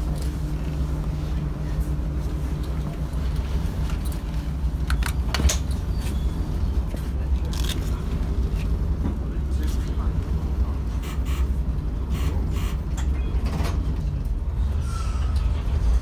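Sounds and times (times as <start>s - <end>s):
diesel railcar engine rumble: 0.0s - 16.0s.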